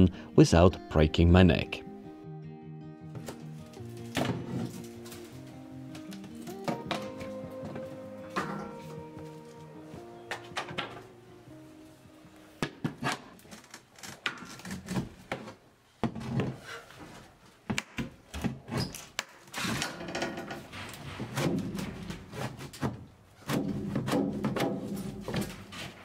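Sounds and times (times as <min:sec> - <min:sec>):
woodwork knocks and clatter: 0:19.7 - 0:25.8.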